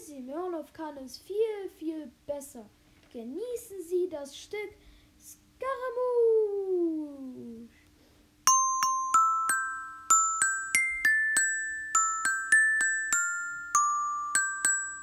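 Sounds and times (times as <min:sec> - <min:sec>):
glockenspiel melody: 0:08.5 - 0:15.0.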